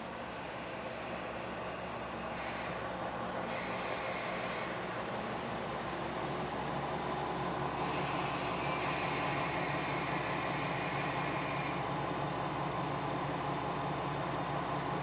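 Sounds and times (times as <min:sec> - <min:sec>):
diesel engine idling: 0:00.0 - 0:07.6
hiss: 0:00.3 - 0:02.8, 0:03.4 - 0:04.8, 0:07.7 - 0:11.8.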